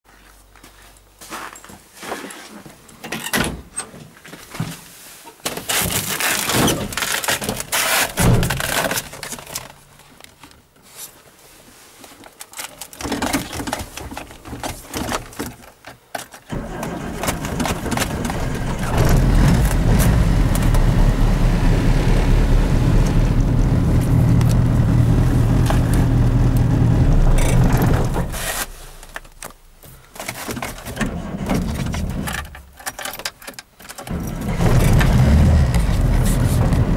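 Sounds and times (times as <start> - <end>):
car engine running: 18.1 - 28.4, 34.1 - 36.9.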